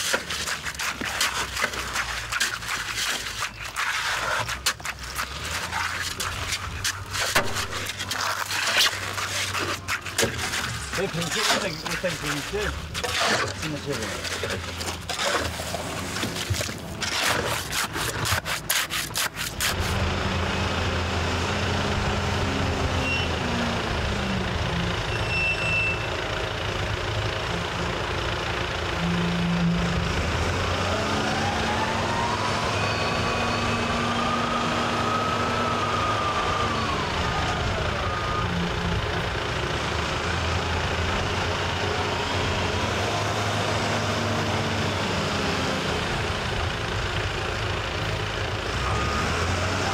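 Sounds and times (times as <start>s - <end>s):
shovel scraping concrete mortar: 0.0s - 20.0s
construction machinery diesel engine: 4.0s - 17.4s, 19.7s - 49.9s.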